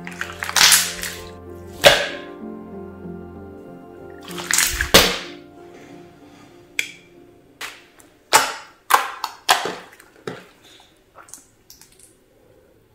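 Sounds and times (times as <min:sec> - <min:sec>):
hands squishing slime: 0:00.0 - 0:02.1, 0:04.2 - 0:05.3.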